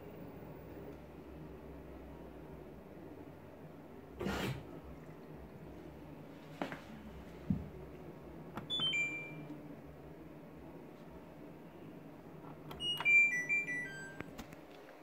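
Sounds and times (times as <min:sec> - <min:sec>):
washing machine low hum: 0:00.0 - 0:15.0
washing machine beeping tune: 0:08.6 - 0:09.5, 0:12.7 - 0:14.4.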